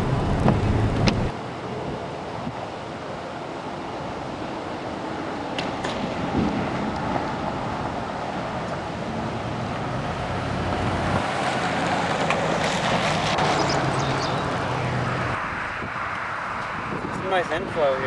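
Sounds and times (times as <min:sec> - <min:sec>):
car engine hum: 0:00.0 - 0:17.2
tyre and wind road noise: 0:00.0 - 0:18.0.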